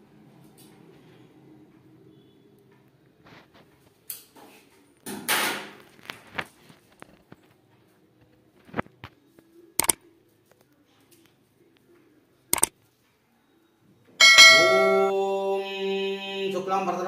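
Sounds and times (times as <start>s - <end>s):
loud ringing tone: 14.2s - 15.4s.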